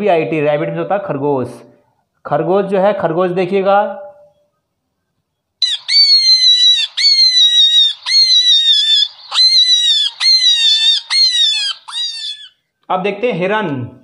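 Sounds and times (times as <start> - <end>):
rabbit squealing: 5.6 - 12.6.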